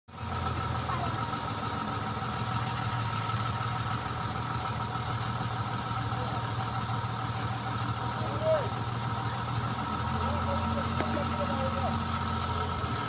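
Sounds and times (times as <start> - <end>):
engine idling: 0.1 - 13.0.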